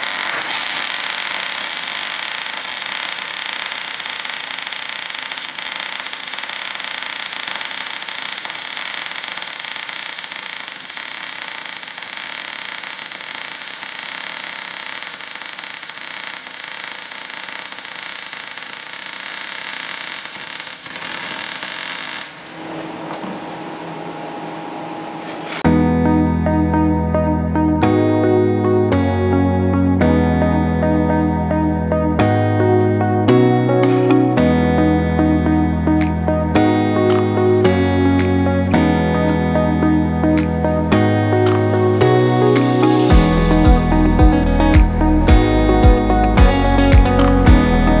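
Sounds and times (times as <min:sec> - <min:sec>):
sparks spattering: 0:00.0 - 0:23.0
welding arc crackling: 0:00.0 - 0:23.3.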